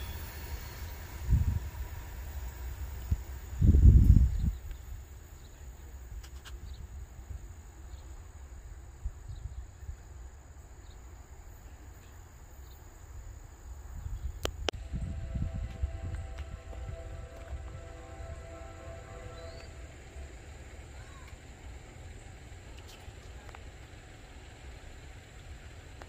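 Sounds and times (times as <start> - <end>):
wind rumbling on microphone: 1.2 - 2.0, 3.0 - 5.1, 8.6 - 10.2, 13.7 - 19.5.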